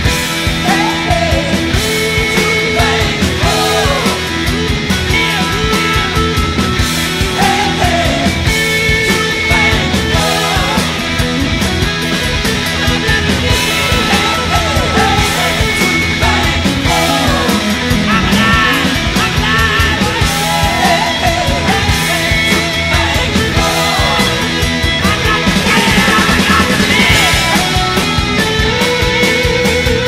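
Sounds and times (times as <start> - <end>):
loud rock music: 0.0 - 30.0
steady drum beat: 0.0 - 30.0
person singing: 0.6 - 4.4, 7.2 - 11.2, 12.6 - 28.0.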